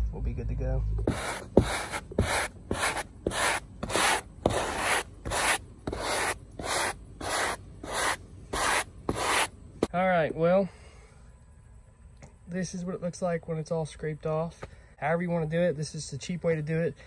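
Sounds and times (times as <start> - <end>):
stiff brush scrubbing: 1.0 - 9.5.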